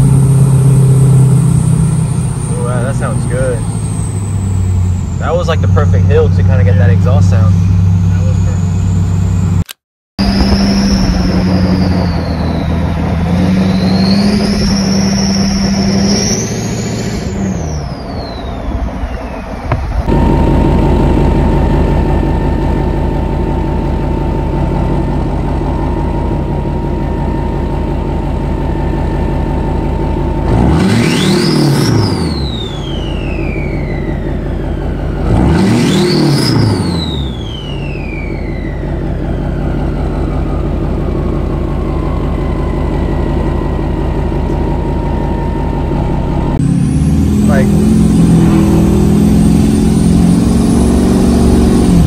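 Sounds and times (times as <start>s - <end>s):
diesel engine idling and revving: 0.0s - 52.0s
turbo whistle: 10.2s - 20.7s, 30.3s - 34.5s, 35.1s - 39.6s.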